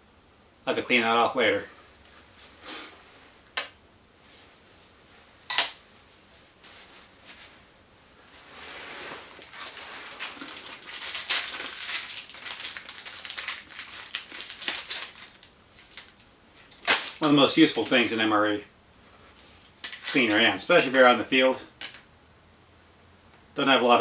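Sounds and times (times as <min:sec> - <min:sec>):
sharp metal clinks: 0:05.5 - 0:05.8
packet crinkling and tearing: 0:09.4 - 0:18.1.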